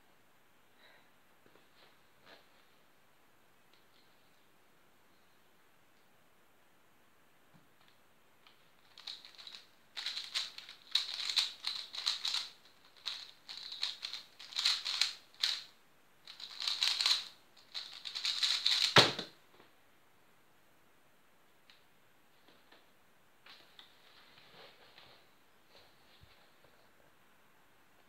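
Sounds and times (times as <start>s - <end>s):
plastic puzzle cube clicking: 8.8s - 15.7s, 16.3s - 19.1s
cube thump set down: 18.7s - 19.4s.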